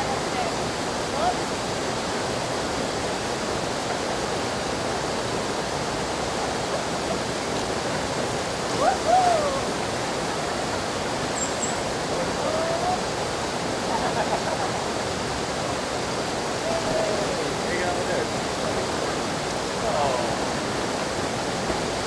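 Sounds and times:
waterfall rushing over rocks: 0.0 - 22.0
gliding calls: 11.2 - 13.0.

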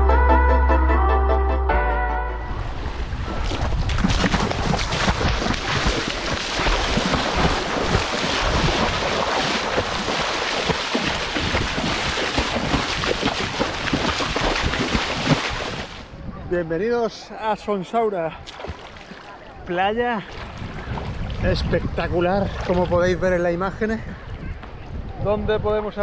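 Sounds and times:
wind buffeting microphone: 2.5 - 17.2, 19.9 - 26.0.

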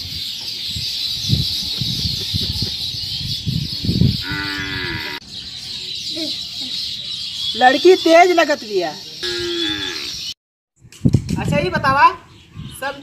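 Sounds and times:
cow mooing: 4.2 - 5.2, 9.2 - 10.2.

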